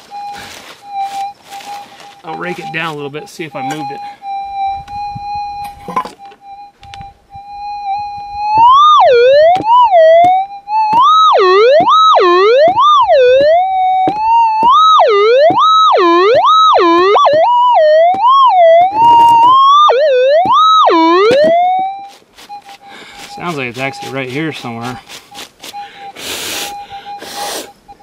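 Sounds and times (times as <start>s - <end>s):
metal detector tone: 0.0s - 28.0s.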